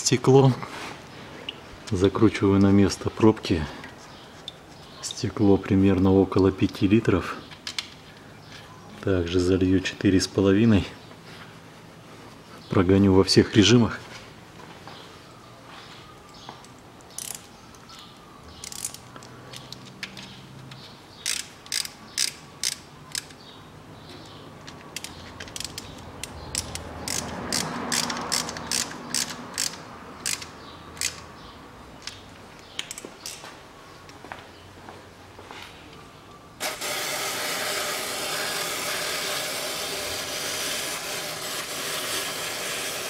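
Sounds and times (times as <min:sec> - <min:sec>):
ratchet wrench clicking: 0:17.1 - 0:17.5, 0:18.6 - 0:19.8, 0:21.2 - 0:23.4, 0:25.0 - 0:31.3.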